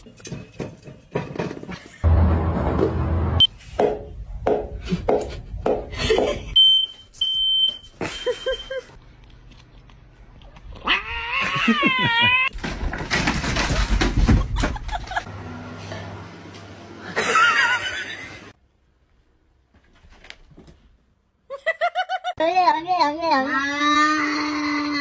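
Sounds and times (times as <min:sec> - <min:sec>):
cat meowing: 0:10.8 - 0:12.5.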